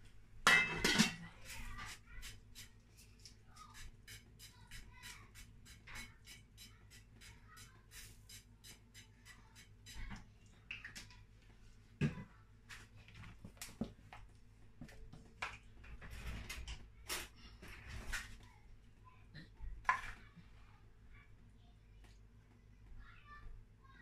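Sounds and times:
kitchen utensils clattering: 0.5s - 1.8s
wooden spoon scraping batter in bowl: 1.3s - 10.2s.

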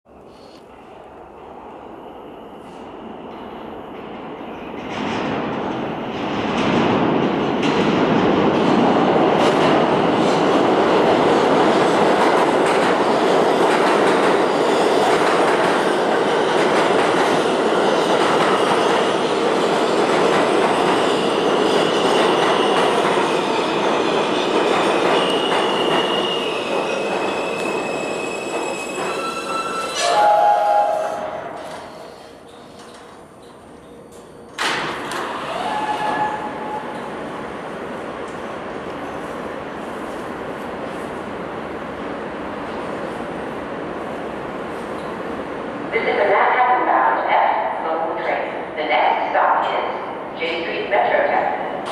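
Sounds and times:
subway train running on rails: 0.1s - 51.9s
wheels and brakes squealing: 25.2s - 30.2s.

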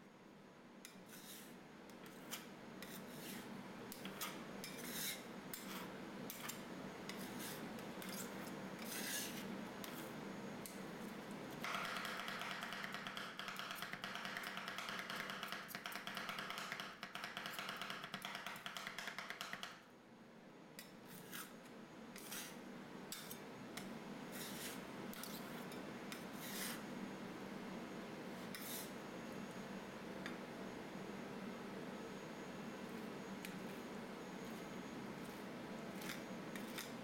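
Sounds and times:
metal spatulas chopping on cold plate: 11.6s - 19.6s.

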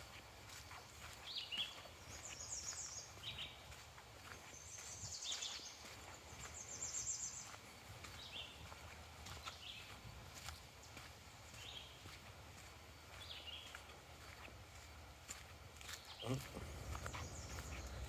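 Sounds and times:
small birds chirping and trilling: 0.0s - 18.0s
low outdoor rumble: 14.1s - 18.0s.

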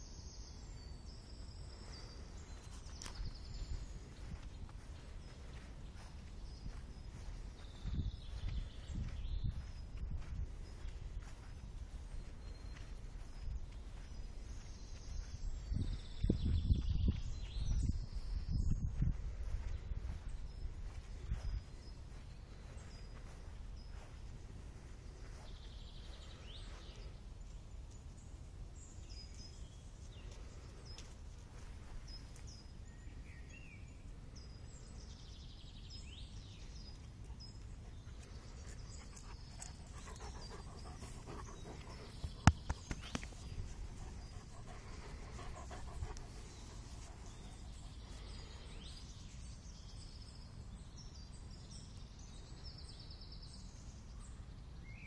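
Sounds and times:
birds chirping: 0.0s - 55.0s
wind on microphone: 6.2s - 12.2s, 14.5s - 21.9s
dog panting: 38.8s - 42.6s, 43.2s - 48.2s.

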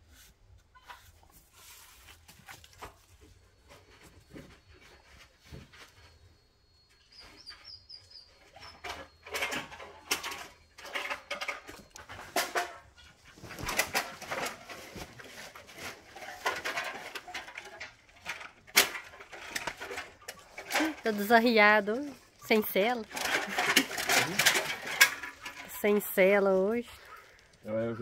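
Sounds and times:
dog crunching aluminium can: 23.0s - 25.7s.

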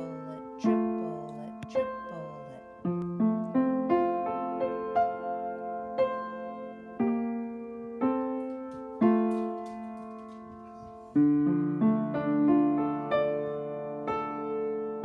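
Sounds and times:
piano chords ringing: 0.0s - 15.0s
piano run of lower notes: 0.0s - 15.0s.

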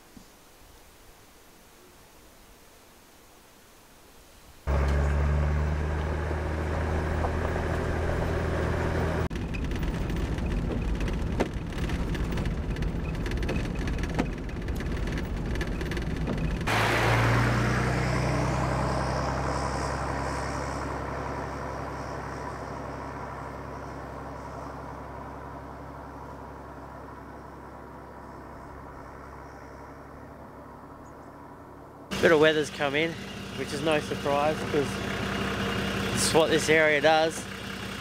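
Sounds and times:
tyres rumbling on gravel: 4.7s - 23.7s, 32.1s - 38.0s
vehicle engine running: 4.7s - 38.0s.

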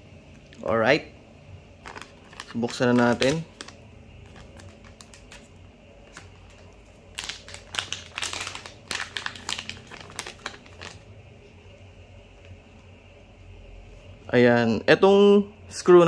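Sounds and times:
plastic packaging crinkling: 1.8s - 11.1s.

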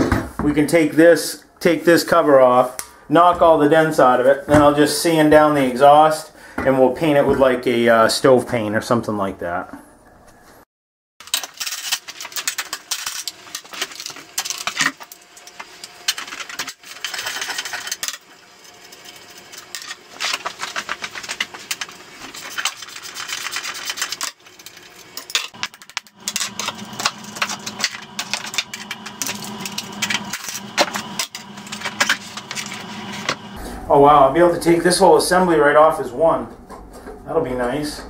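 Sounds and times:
tools clicking and clattering: 11.2s - 15.2s
low hum: 13.9s - 37.0s.

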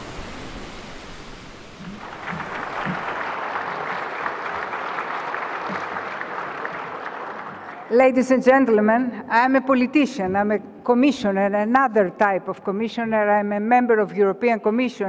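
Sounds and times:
audience applause: 1.8s - 8.0s.

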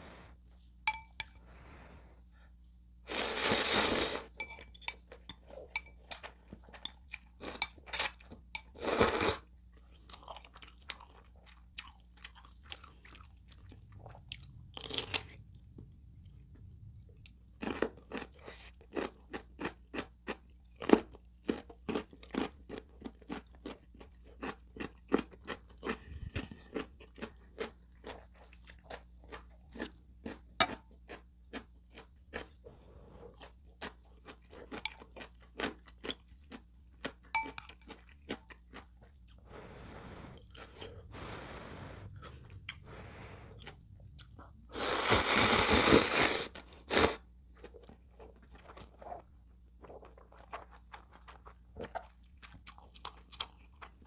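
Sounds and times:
slurping noodles: 3.1s - 4.4s, 7.5s - 9.4s, 39.4s - 43.8s, 44.7s - 47.2s
wet chewing: 47.6s - 54.0s.

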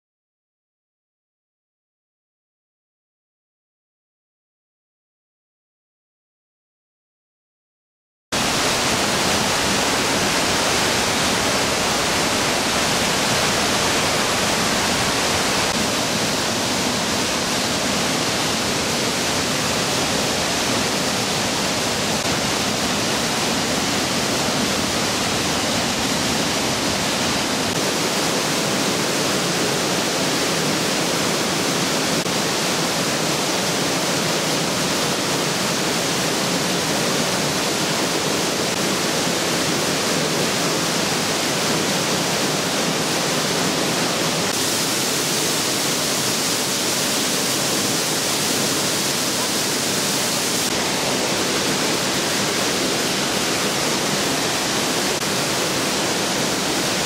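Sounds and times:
waterfall rushing: 8.4s - 57.0s.

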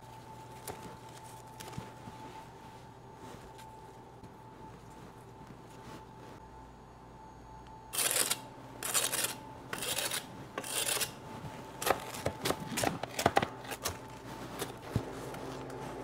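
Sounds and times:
knife scraping pizza crust: 8.0s - 15.8s.

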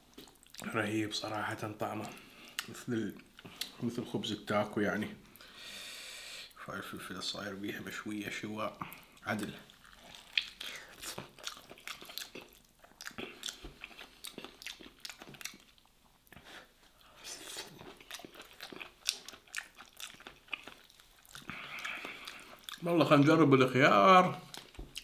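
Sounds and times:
man chewing crunchy food: 0.0s - 0.7s, 8.8s - 23.2s, 24.4s - 25.0s.

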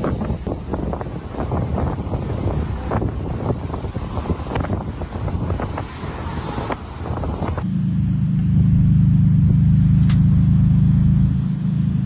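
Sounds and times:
wind buffeting microphone: 0.0s - 7.6s.

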